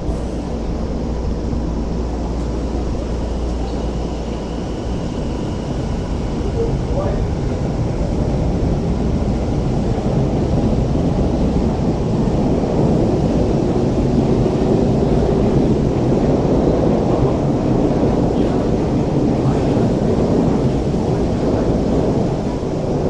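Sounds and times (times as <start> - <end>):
faint inverter whine rising: 0.0 - 11.8
train motors and wheels rumbling: 0.0 - 23.0.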